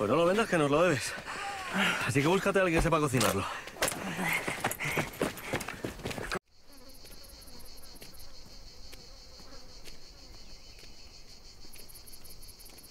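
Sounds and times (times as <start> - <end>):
insects buzzing: 0.0 - 12.9
rapid high insect chirps: 6.5 - 12.9.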